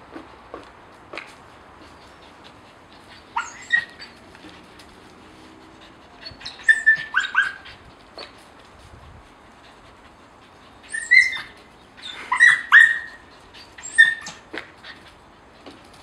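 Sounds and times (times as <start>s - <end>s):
dog yipping: 3.0s - 4.3s, 6.2s - 8.4s, 10.8s - 15.0s.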